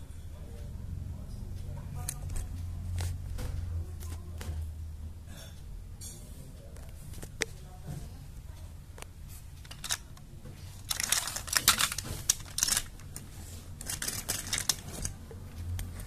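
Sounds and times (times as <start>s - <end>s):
plastic toys clattering: 9.6s - 15.4s.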